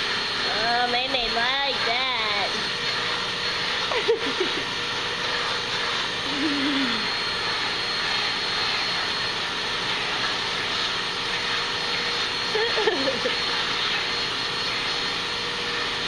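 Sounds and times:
vacuum cleaner running: 0:00.0 - 0:16.0.

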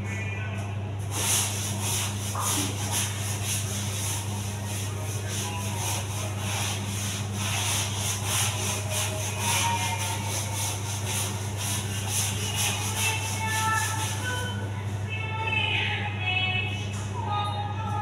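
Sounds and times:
steady low hum: 0:00.0 - 0:18.0
scrubbing tile floor: 0:01.1 - 0:14.5.

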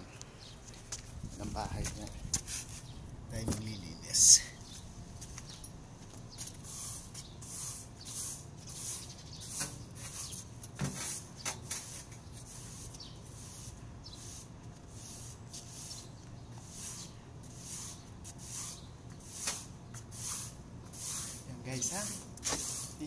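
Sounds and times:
broom sweeping tiled floor: 0:06.5 - 0:23.0.

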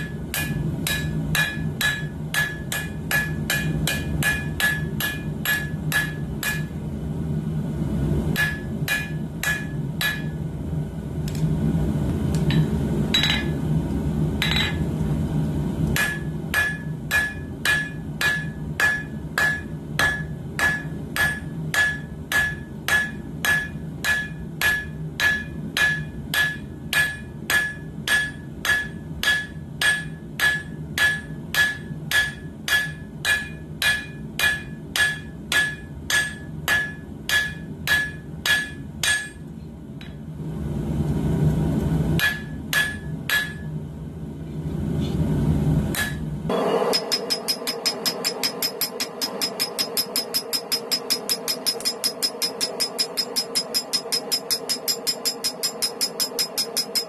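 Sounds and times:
hammer ringing on anvil: 0:00.0 - 0:06.7, 0:08.4 - 0:10.4, 0:12.5 - 0:13.6, 0:14.4 - 0:14.9, 0:16.0 - 0:39.4, 0:42.2 - 0:43.7, 0:46.0 - 0:57.0
steady low rumble: 0:00.0 - 0:27.0.

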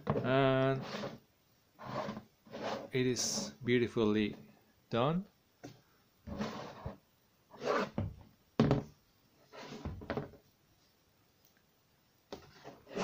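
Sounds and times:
plastic rubbing and scraping: 0:00.0 - 0:01.2, 0:01.8 - 0:03.6, 0:06.3 - 0:07.0, 0:12.3 - 0:13.0.

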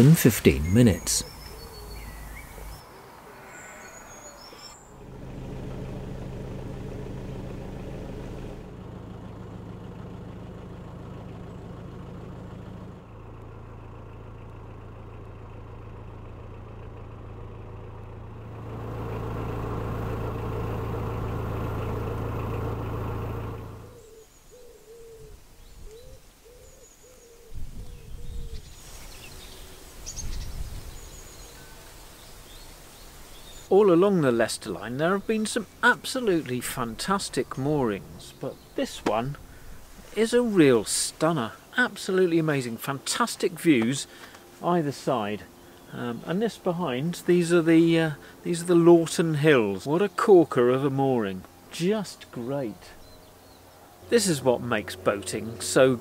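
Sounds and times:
bird hooting: 0:01.0 - 0:04.9, 0:23.9 - 0:28.7.

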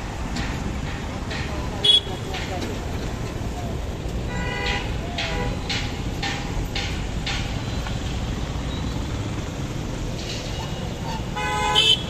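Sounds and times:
motorcycle engine and road rumble: 0:00.0 - 0:12.0
vehicle horn honk: 0:01.8 - 0:02.2, 0:11.1 - 0:12.0.

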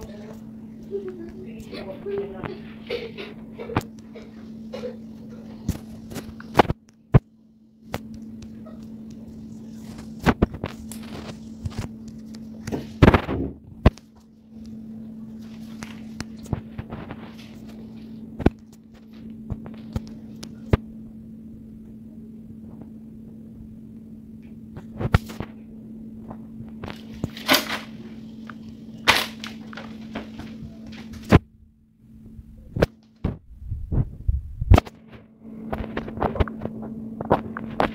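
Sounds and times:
steady low hum: 0:00.0 - 0:37.9.

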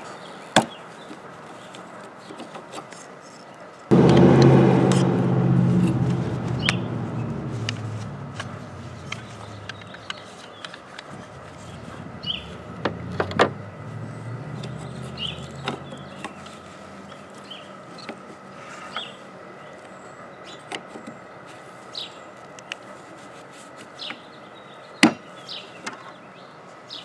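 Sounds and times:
vehicle engine running: 0:03.9 - 0:10.2, 0:11.1 - 0:17.3
birds chirping: 0:06.2 - 0:17.8.

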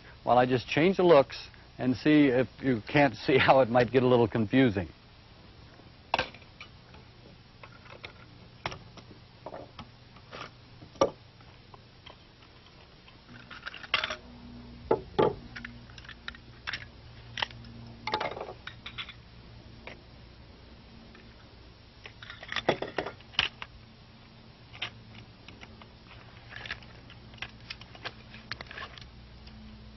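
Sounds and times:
rifle handling clicks and clatter: 0:24.8 - 0:29.1.

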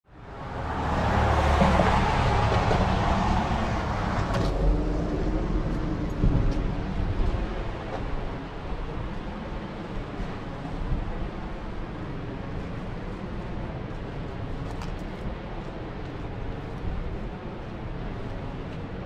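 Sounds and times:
low outdoor rumble: 0:00.1 - 0:19.0
car passing on road: 0:00.2 - 0:09.0.

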